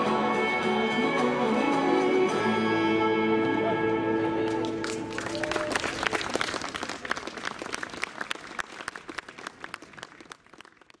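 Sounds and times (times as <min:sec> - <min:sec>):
crowd applauding: 0:04.5 - 0:11.0.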